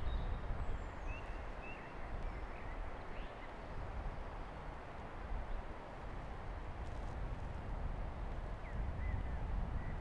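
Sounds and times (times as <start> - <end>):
wind buffeting microphone: 5.2 - 10.0.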